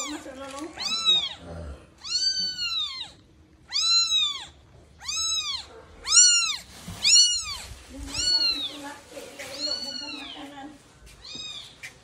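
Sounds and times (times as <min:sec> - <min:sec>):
kitten mewing: 0:00.8 - 0:08.7.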